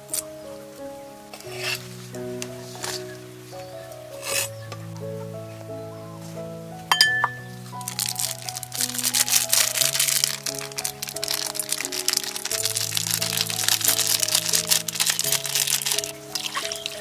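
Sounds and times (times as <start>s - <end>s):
background music of held notes: 0.0s - 17.0s
dry seeds shaken into bowls: 7.3s - 17.0s
plastic packet crinkling: 7.3s - 17.0s.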